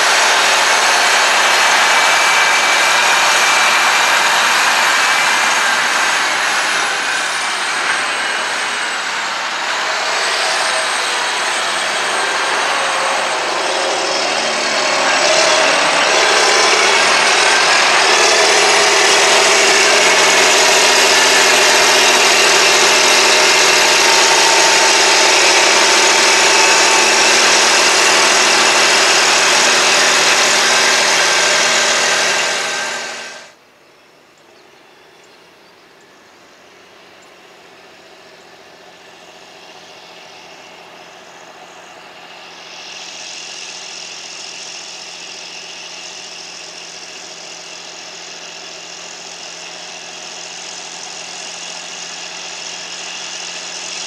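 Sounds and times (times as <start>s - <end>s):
high whine: 0.0s - 33.6s
vehicle engine working under load: 0.0s - 33.6s, 34.9s - 54.0s.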